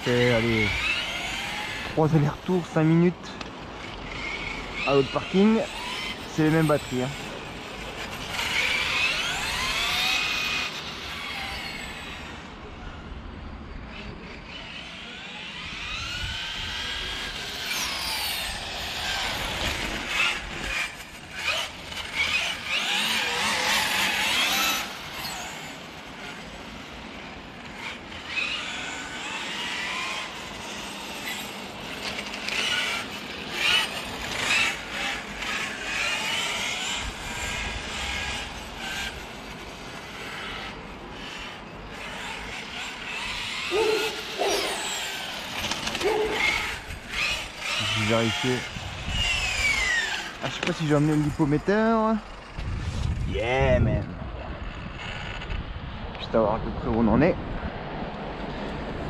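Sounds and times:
electric motor whine: 0.0 - 56.2
tyre noise on asphalt: 15.6 - 56.2.

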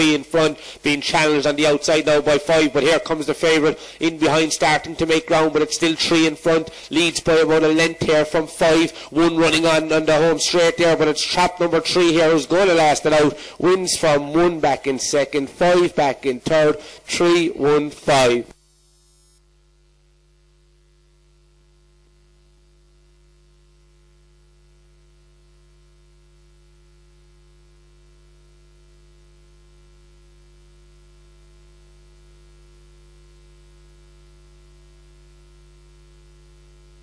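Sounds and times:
constant hiss: 0.0 - 19.4
faint electrical mains hum: 0.0 - 37.0.

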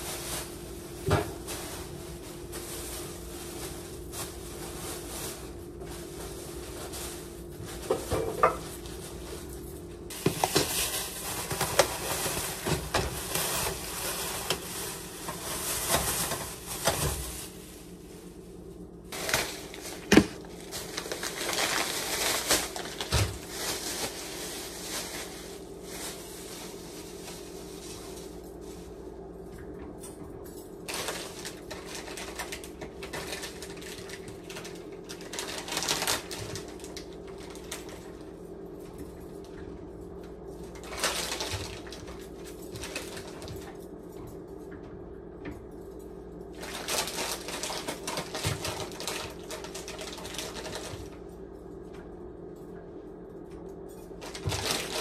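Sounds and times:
plastic bags rustling: 0.0 - 29.4, 30.0 - 43.9, 46.4 - 51.8, 54.1 - 55.0
steady hum: 0.0 - 55.0
items knocking on surface: 7.8 - 8.7, 20.0 - 20.4.

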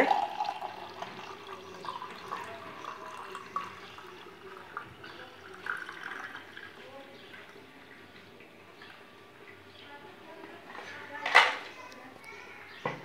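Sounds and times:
juice pouring into a glass: 0.0 - 7.6.

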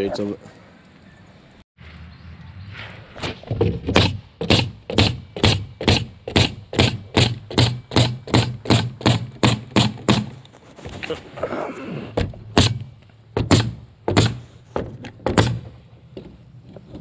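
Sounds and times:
nails driven into plywood: 3.6 - 10.4, 12.2 - 15.8.

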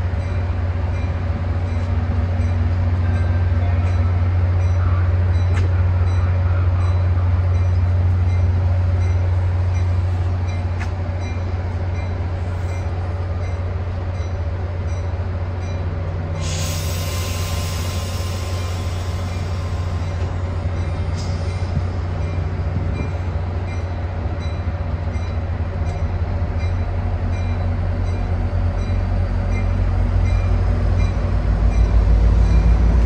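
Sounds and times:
diesel locomotive hum: 0.0 - 33.0
high hiss or squeal: 16.4 - 20.0.

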